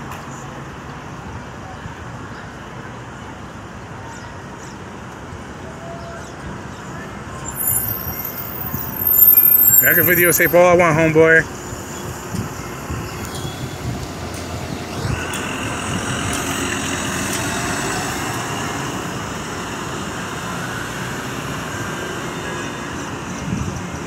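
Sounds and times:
street noise: 0.0 - 24.0
motor vehicle running: 7.4 - 10.7
steady high-pitched whine: 7.4 - 10.7.

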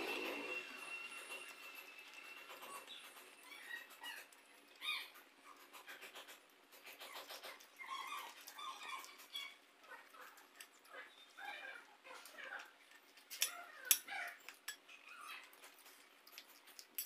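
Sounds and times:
squeaky animal calls: 0.0 - 12.7.

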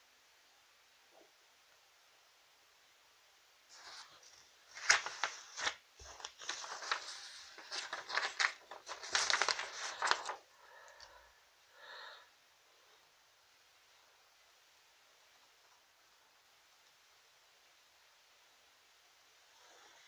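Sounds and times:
faint hum: 0.0 - 20.0
crinkling handling noise: 3.7 - 11.2.

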